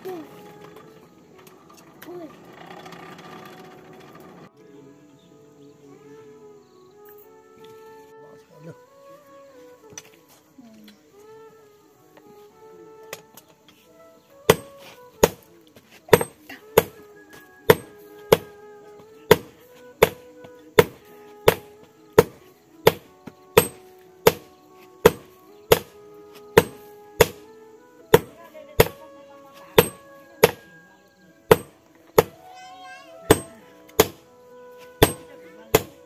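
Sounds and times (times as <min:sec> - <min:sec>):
hammer striking hot steel on anvil: 0:14.5 - 0:15.4, 0:16.1 - 0:17.0, 0:17.7 - 0:18.5, 0:19.3 - 0:20.2, 0:20.8 - 0:25.9, 0:26.6 - 0:27.4, 0:28.1 - 0:29.0, 0:29.8 - 0:30.6, 0:31.5 - 0:32.4, 0:33.3 - 0:34.2, 0:35.0 - 0:36.0.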